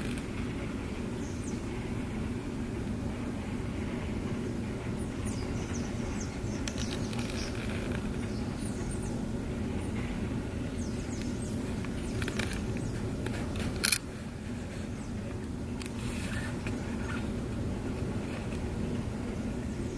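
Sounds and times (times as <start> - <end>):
wind rumble: 0.0 - 19.9
birds chirping and whistling: 4.9 - 9.2, 9.8 - 13.1.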